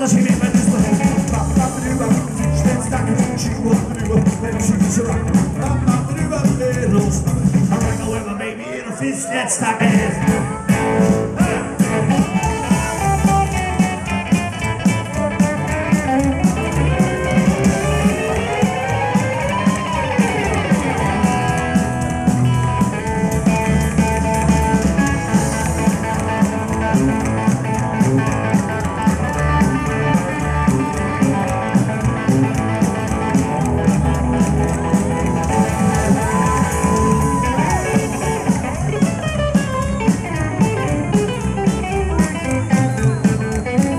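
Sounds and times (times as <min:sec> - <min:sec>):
bass and drums: 0:00.0 - 0:08.6, 0:09.6 - 0:43.9
electric guitar solo: 0:10.2 - 0:43.9.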